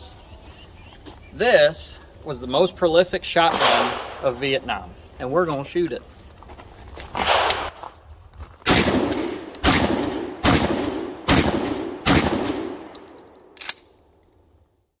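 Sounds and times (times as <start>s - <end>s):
shotgun shots echoing: 3.4s - 4.7s, 7.2s - 7.8s, 8.7s - 13.8s.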